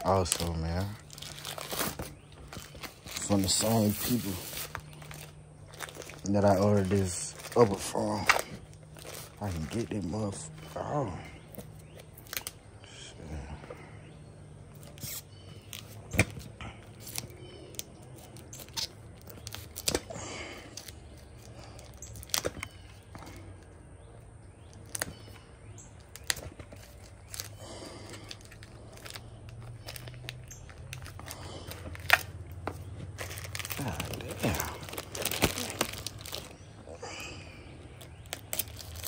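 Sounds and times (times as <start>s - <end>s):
low steady hum: 0.0s - 39.0s
scraping rustles: 0.3s - 10.7s.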